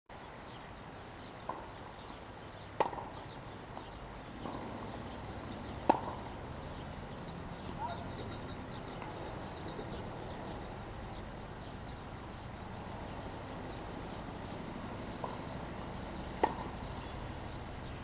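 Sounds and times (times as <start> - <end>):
steady background noise: 0.1 - 18.0
tennis racket hitting ball: 2.8 - 3.1, 5.6 - 6.3, 16.3 - 16.9.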